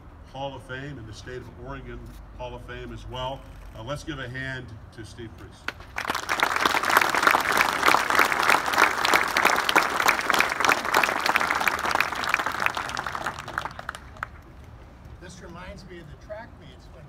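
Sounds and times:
crowd applauding: 5.7s - 14.6s.

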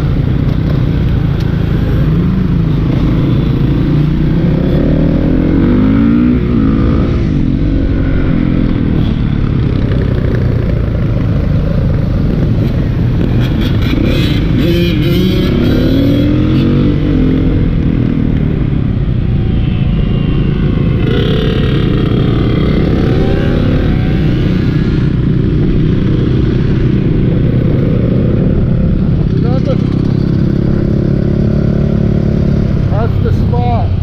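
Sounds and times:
other motorcycle engines: 0.0s - 34.0s
dirt bike engine revving: 1.7s - 10.8s, 13.2s - 17.7s, 21.0s - 33.2s.

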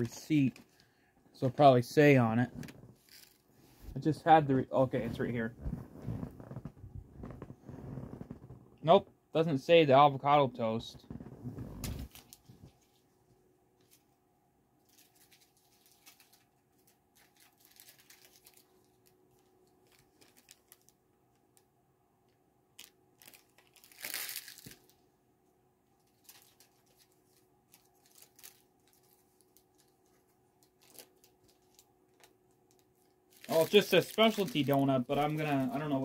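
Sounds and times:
paper crinkling and rustling: 11.0s - 13.1s, 14.8s - 21.0s, 22.8s - 25.0s, 26.0s - 36.0s.

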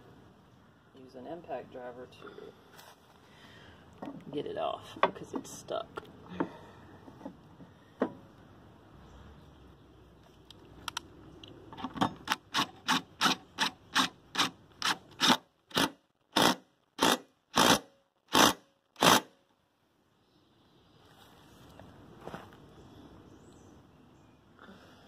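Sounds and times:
impact driver bursts: 12.3s - 19.3s.

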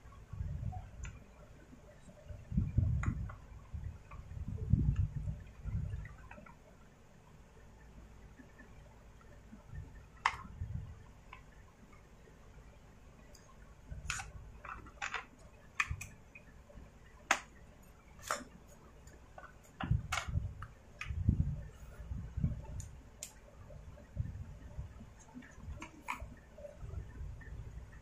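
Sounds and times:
plastic parts clicking and tapping: 2.8s - 6.6s, 10.0s - 12.1s, 13.3s - 21.2s, 25.2s - 26.4s.

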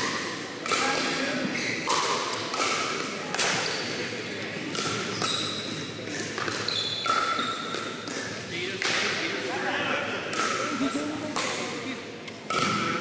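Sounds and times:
sneakers squeaking on hardwood: 5.1s - 5.8s, 6.4s - 7.9s.

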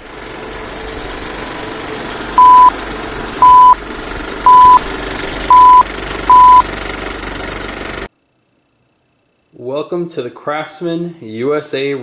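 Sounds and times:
countdown beeps: 2.4s - 2.7s, 3.4s - 3.8s, 4.5s - 4.8s, 5.5s - 6.6s.

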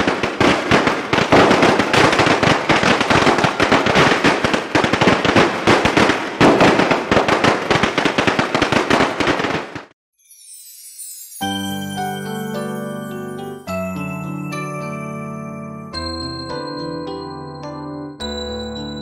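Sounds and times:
firecrackers crackling: 0.0s - 10.0s.

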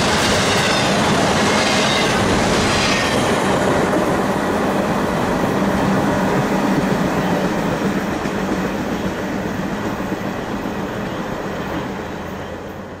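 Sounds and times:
freight train wheels rumbling: 0.0s - 13.0s.

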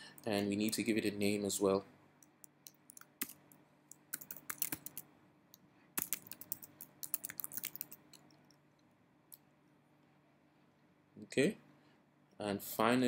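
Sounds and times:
keyboard typing: 2.3s - 5.0s, 6.0s - 8.6s.

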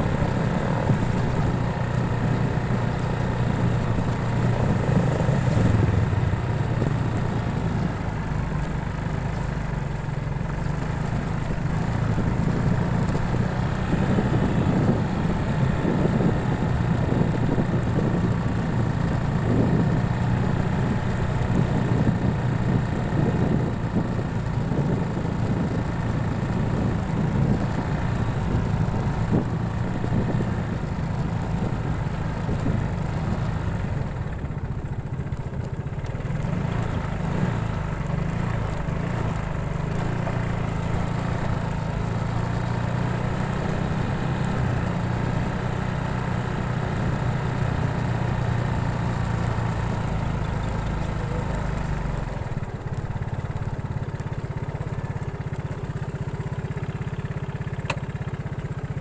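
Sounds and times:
road and wind noise hiss: 0.0s - 59.0s
vehicle engine hum: 0.0s - 59.0s.

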